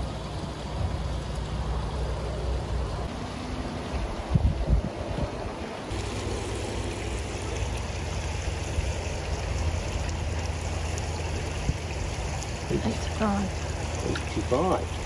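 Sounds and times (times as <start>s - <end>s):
running water: 0.0s - 15.0s
small water splashes: 5.8s - 15.0s.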